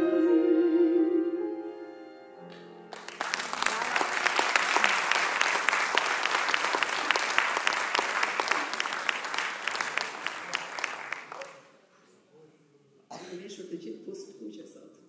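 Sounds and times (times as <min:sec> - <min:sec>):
audience applauding: 0:02.9 - 0:11.7.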